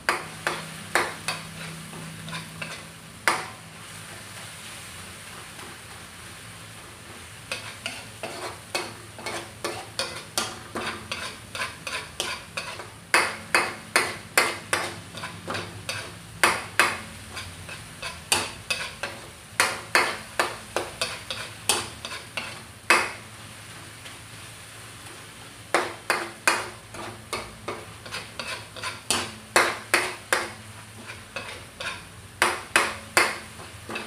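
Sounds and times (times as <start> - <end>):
frying sizzle: 0.0 - 34.0
metal utensil scraping a wok: 0.1 - 3.6, 7.5 - 22.7, 25.8 - 32.8.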